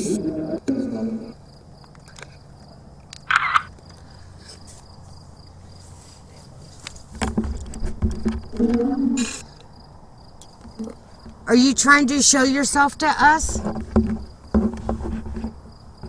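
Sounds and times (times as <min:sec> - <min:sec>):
murmured voices: 0:00.0 - 0:01.4
crickets chirping: 0:00.0 - 0:16.0.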